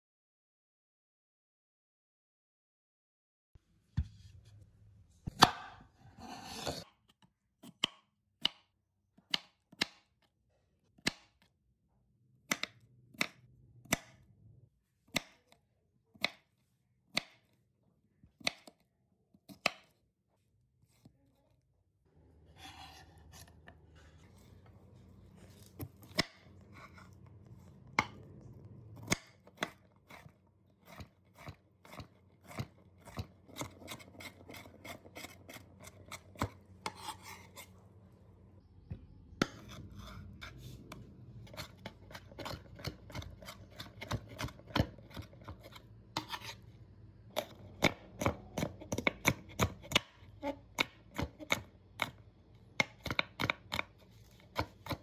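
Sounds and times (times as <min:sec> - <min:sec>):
knife chopping on wooden board: 0:05.3 - 0:06.8, 0:39.4 - 0:46.6.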